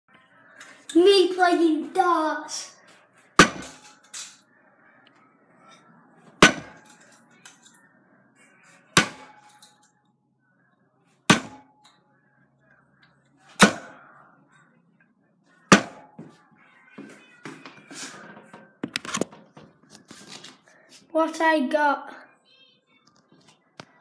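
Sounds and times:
darts hitting dartboard: 0:06.4 - 0:06.9, 0:09.0 - 0:09.5, 0:11.3 - 0:11.7, 0:13.6 - 0:14.0, 0:15.7 - 0:16.3.

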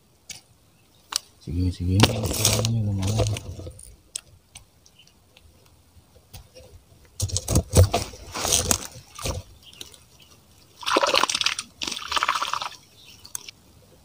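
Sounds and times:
man's voice: 0:01.4 - 0:03.9.

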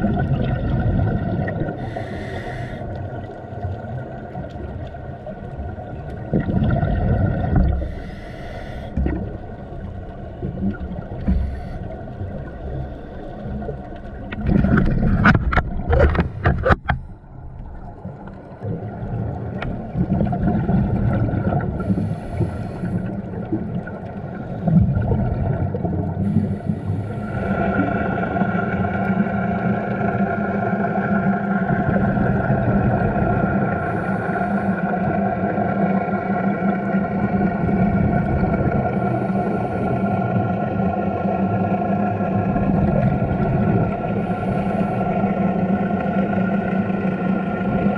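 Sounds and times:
boat engine hum underwater: 0:00.0 - 0:47.9
sharp clicks and crackles: 0:13.7 - 0:18.8.

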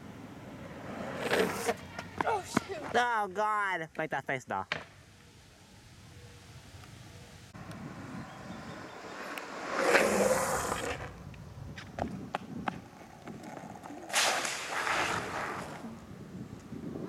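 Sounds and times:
longboard wheels rolling on asphalt: 0:00.0 - 0:03.1, 0:07.6 - 0:17.0
board scraping: 0:09.2 - 0:11.2, 0:13.3 - 0:15.9.

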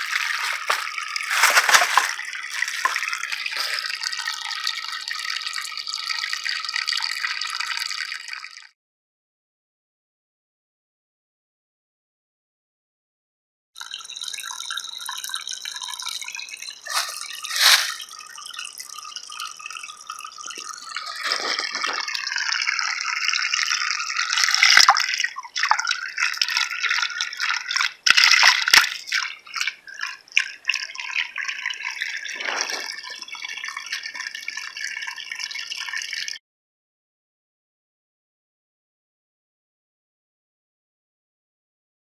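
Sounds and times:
water trickling and dripping: 0:00.0 - 0:08.7, 0:13.8 - 0:36.4.

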